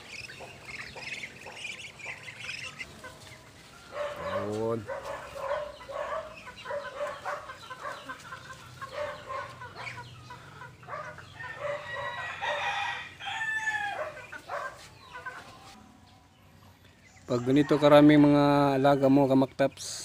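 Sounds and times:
chickens clucking: 0.0s - 20.0s
rooster crowing: 3.8s - 4.6s, 10.8s - 14.7s.

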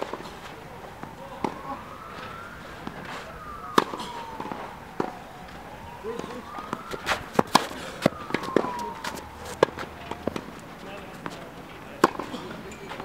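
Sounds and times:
siren wailing: 0.0s - 11.3s
tennis ball hitting racket strings: 6.2s - 13.0s.

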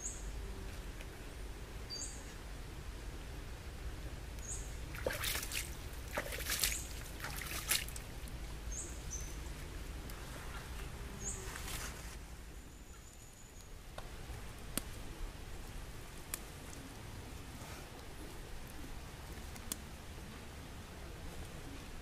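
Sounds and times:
water splashing and trickling: 4.7s - 9.8s.

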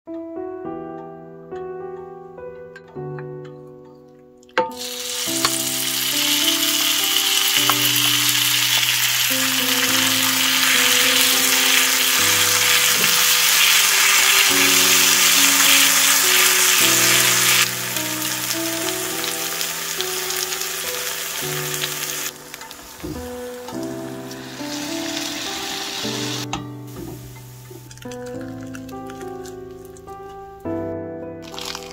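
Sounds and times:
food sizzling on hot plate: 4.8s - 29.5s, 31.4s - 31.9s.

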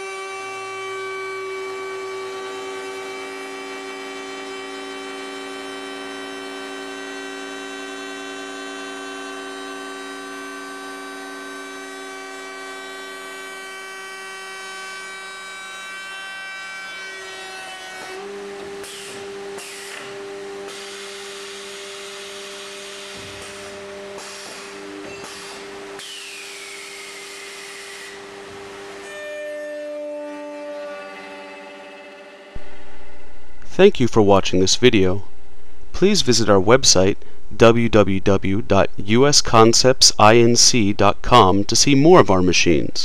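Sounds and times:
router bit cutting wood: 0.0s - 32.8s
router motor whining: 0.0s - 32.8s.

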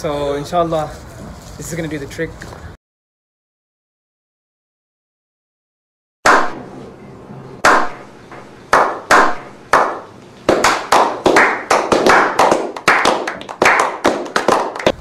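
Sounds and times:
men clapping: 7.6s - 7.9s, 8.7s - 15.0s.

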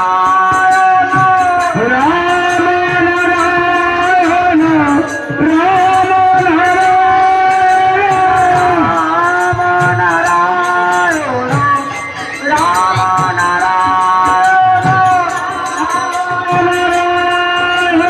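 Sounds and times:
light percussion and drum beat: 0.0s - 18.0s
person chanting devotional song: 0.0s - 18.0s.

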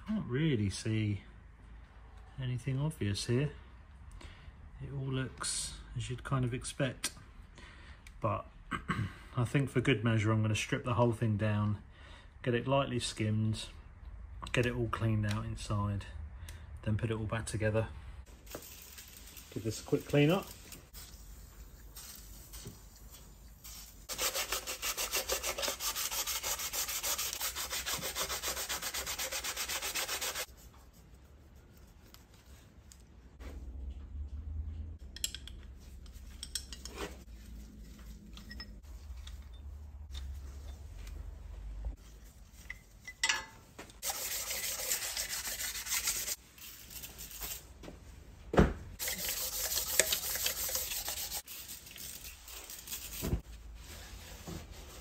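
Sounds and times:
scrubbing metal by hand: 18.7s - 32.5s, 44.0s - 47.6s, 49.0s - 53.2s.

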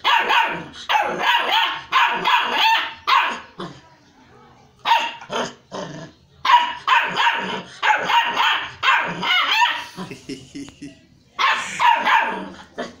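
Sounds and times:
puppy yapping: 0.0s - 3.4s, 6.4s - 9.9s, 11.4s - 12.5s.

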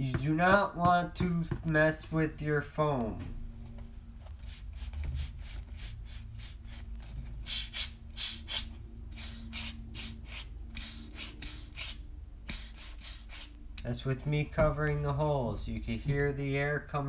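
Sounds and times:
air hissing from tire vents: 4.4s - 13.6s.

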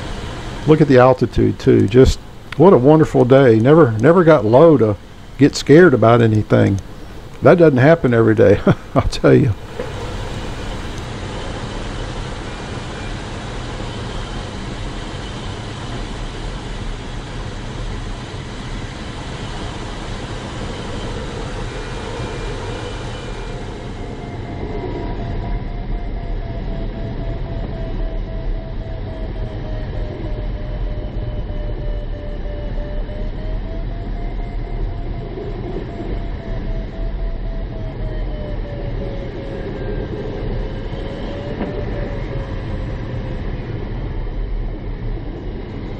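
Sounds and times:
electronic tone rising and falling: 0.0s - 14.4s, 19.7s - 45.9s
low rumble: 0.0s - 15.8s, 33.0s - 45.9s
airflow rush in cockpit: 0.0s - 45.9s.

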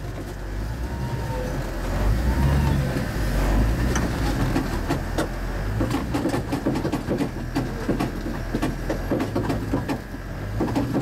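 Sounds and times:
vehicle creaks clicks and knocks: 0.0s - 0.6s, 2.9s - 11.0s
off-road vehicle engine running low: 0.0s - 11.0s.

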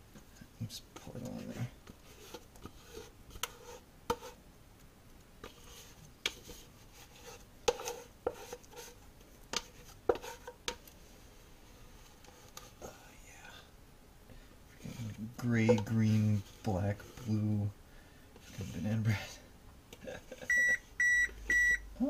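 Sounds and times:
scraper scraping batter from bowl: 1.0s - 4.4s, 5.4s - 10.6s
scraper knocking on bowl: 6.3s - 8.9s, 9.5s - 10.6s.

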